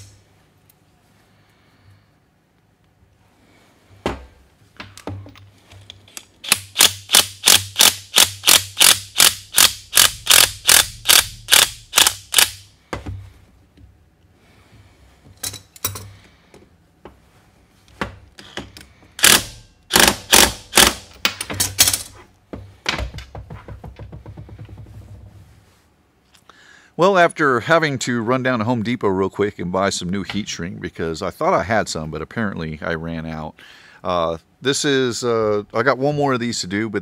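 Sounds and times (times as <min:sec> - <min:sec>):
impact wrench strokes: 0:06.2 - 0:12.7, 0:19.2 - 0:21.1.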